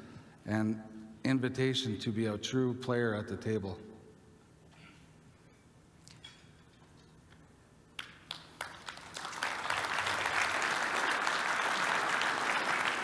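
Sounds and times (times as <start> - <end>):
audience applause: 8.3 - 13.0.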